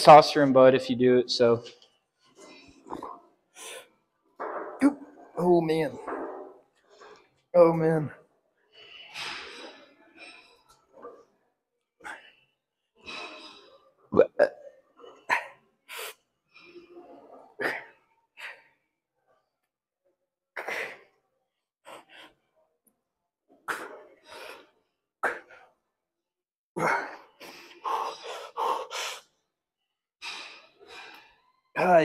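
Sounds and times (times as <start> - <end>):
man breathing with effort: 21.8 - 22.5, 26.8 - 29.4.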